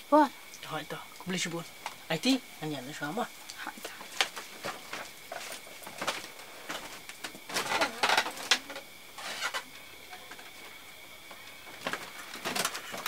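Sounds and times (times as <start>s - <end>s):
rustling: 3.8s - 9.7s
scrapes and creaks: 3.8s - 10.7s.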